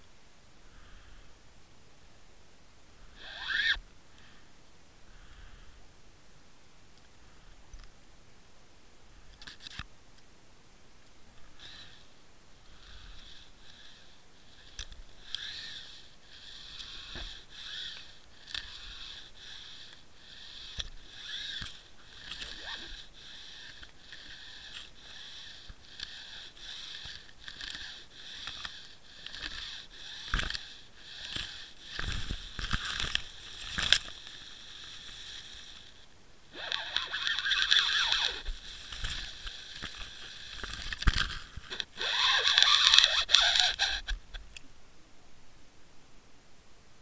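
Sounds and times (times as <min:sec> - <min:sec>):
scattered clicks: 0:09.3 - 0:10.3, 0:12.9 - 0:36.0, 0:36.6 - 0:44.7
kelp rubbing against housing: 0:14.6 - 0:44.4.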